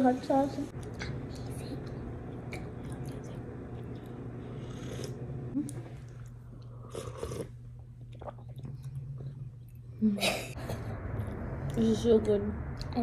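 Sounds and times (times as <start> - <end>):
steady low hum: 0.0 - 13.0
woman slurping soup: 4.5 - 5.2, 6.8 - 7.6.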